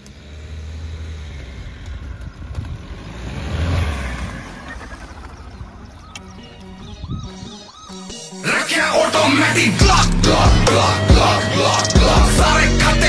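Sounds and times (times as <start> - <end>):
low engine rumble: 0.0 - 7.4.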